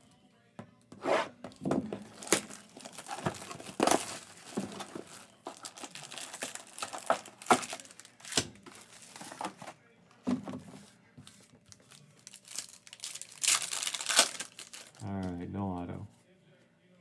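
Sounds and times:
cardboard box opening: 1.2s - 9.8s
plastic wrap tearing and crinkling: 1.5s - 9.8s, 11.7s - 15.3s.

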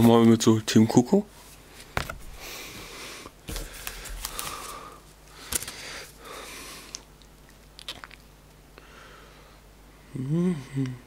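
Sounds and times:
cardboard and paper rustling: 3.5s - 6.2s.

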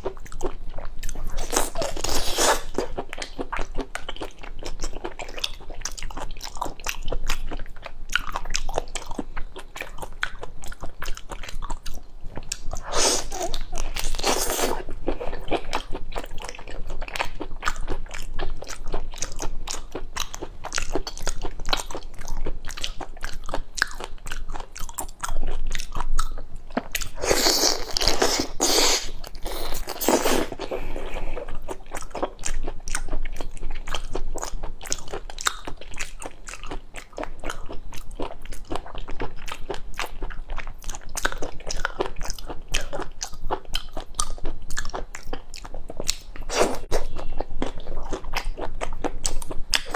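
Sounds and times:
person chewing: 0.0s - 49.9s.

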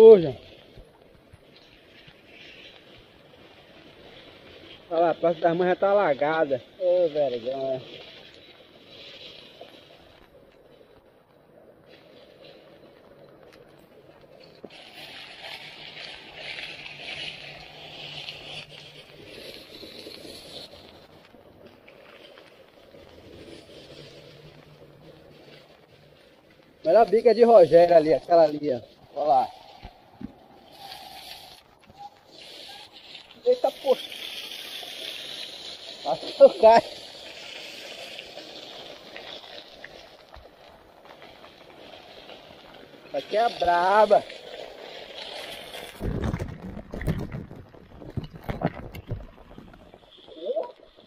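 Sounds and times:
water splashing on street: 14.6s - 51.0s
heavy rain on wet pavement: 26.9s - 51.0s.

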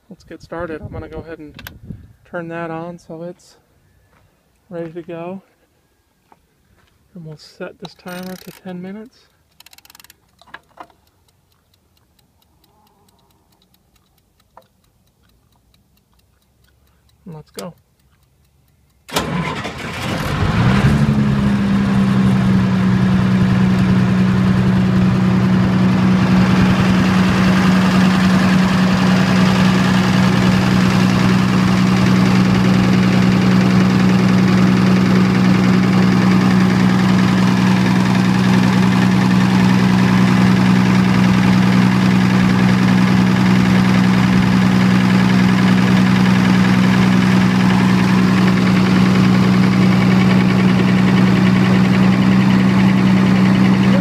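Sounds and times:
diesel generator engine running: 19.2s - 54.0s.

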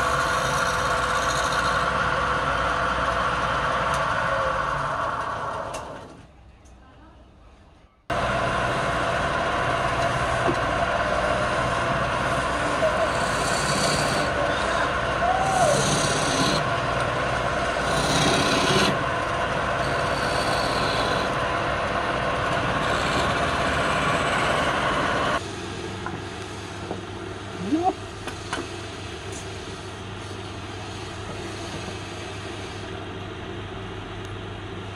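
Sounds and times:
steel tool scraping spinning wood: 0.0s - 2.1s, 9.3s - 21.4s, 22.2s - 25.0s, 28.3s - 32.9s
wood lathe motor hum: 0.0s - 6.0s, 8.1s - 25.4s.

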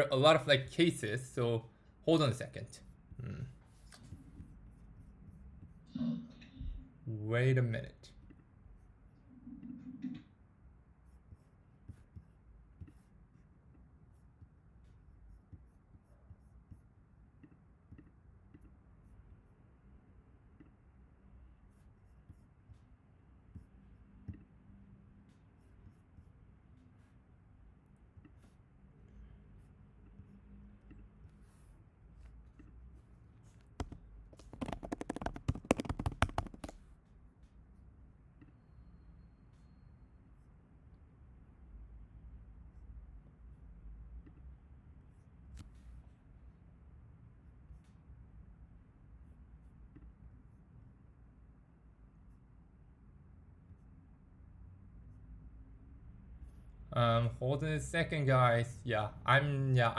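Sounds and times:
low steady hum: 0.0s - 34.6s
faint computer clicking: 33.5s - 36.9s.

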